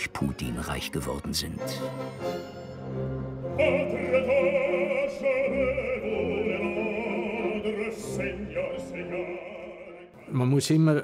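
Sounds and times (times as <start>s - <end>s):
orchestra playing: 0.0s - 10.6s
male operatic singer: 3.5s - 11.0s.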